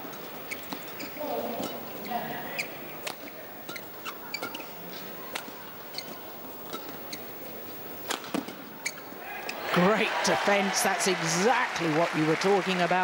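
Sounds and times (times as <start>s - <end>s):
shoe squeaks on court: 0.1s - 9.6s
racket hitting shuttlecock: 8.0s - 9.0s.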